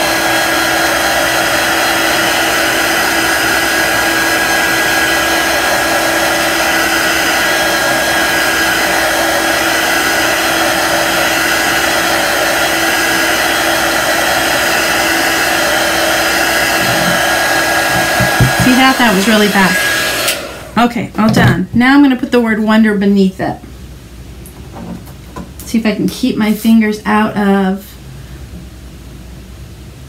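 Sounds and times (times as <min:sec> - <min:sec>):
heat tool blowing: 0:00.0 - 0:20.8.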